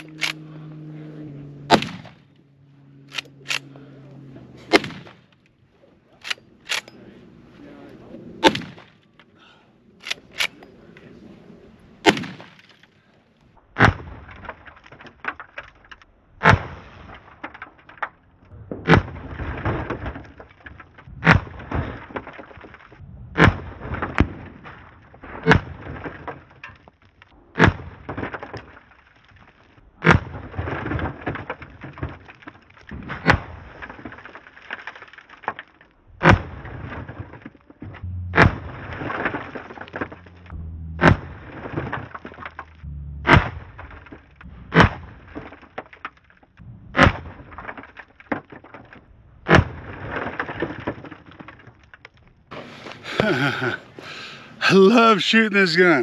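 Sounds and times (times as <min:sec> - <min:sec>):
rifle shots: 0:00.0 - 0:00.5, 0:01.7 - 0:02.3, 0:04.7 - 0:05.3, 0:08.4 - 0:09.0, 0:12.0 - 0:12.9
rocks shattering: 0:13.7 - 0:56.0.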